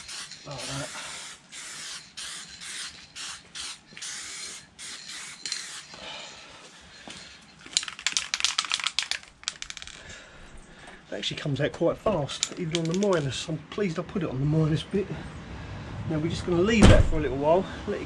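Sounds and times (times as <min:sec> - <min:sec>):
aerosol can spraying: 0:00.0 - 0:06.0
aerosol mixing ball rattling: 0:07.0 - 0:10.0, 0:12.4 - 0:13.3.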